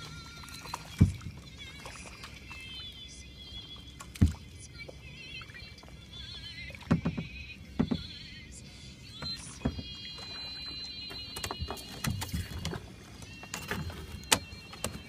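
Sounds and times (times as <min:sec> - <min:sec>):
light water splashes: 0:00.0 - 0:08.3, 0:09.2 - 0:12.7
faint music with singing: 0:00.0 - 0:15.0.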